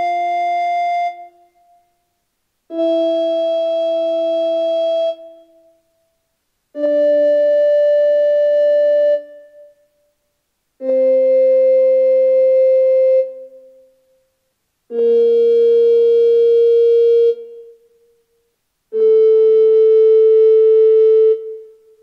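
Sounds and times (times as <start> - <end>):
recorder playing long notes: 0.0 - 1.8, 2.7 - 5.8, 6.8 - 9.8, 10.8 - 13.8, 14.9 - 17.8, 18.9 - 22.0.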